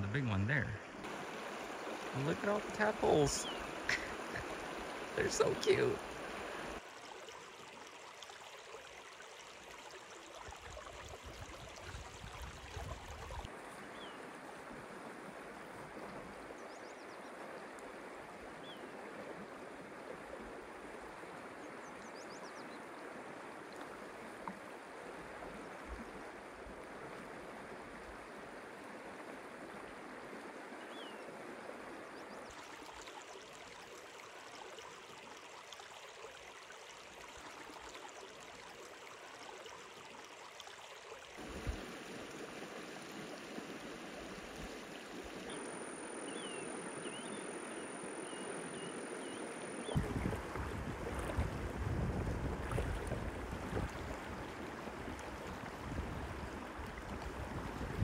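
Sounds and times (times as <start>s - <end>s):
stream flowing over rocks: 0.0s - 16.6s, 32.5s - 58.0s.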